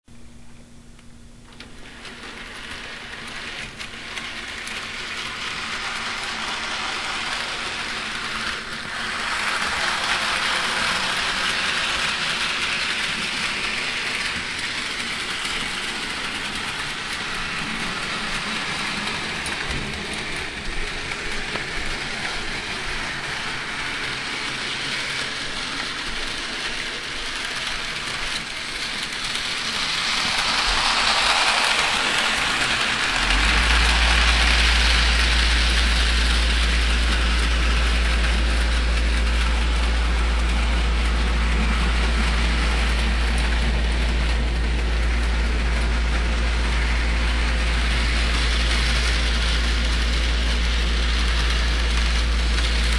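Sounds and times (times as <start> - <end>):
model train motor whirring: 1.5 - 52.9.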